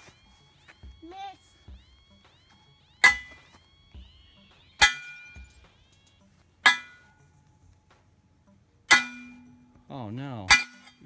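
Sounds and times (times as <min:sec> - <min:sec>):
hammer clanging on steel: 0:03.0 - 0:11.0.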